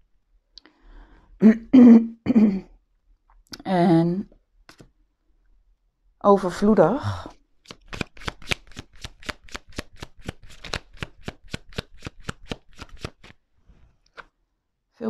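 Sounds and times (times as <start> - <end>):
cards being shuffled: 4.7 - 4.9, 7.6 - 13.4, 14.0 - 14.3.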